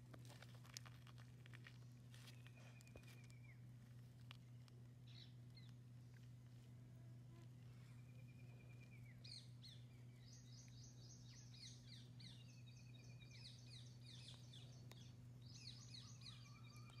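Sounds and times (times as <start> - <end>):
low steady hum: 0.0 - 17.0
birds chirping and trilling: 5.0 - 5.8, 7.6 - 17.0.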